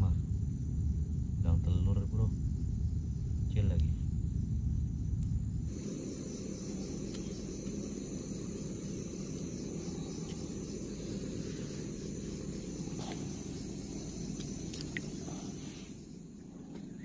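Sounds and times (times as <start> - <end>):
high insect chirring: 0.0 - 17.0
low outdoor rumble: 0.0 - 17.0
faint ticks: 14.0 - 15.1.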